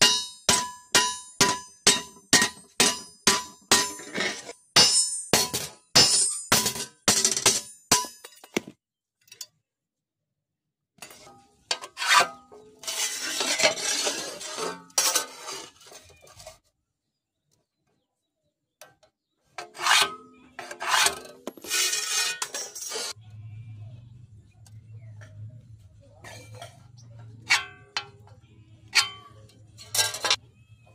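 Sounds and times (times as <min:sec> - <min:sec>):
metal scraping on anvil: 0:00.0 - 0:08.2, 0:11.0 - 0:16.6, 0:19.6 - 0:23.2, 0:26.2 - 0:30.4.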